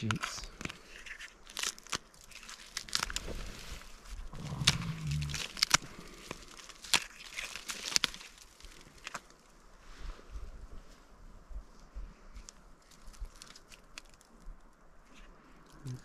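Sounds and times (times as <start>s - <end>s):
bark cracking and snapping: 0.0s - 3.4s, 4.0s - 9.4s, 12.4s - 14.8s.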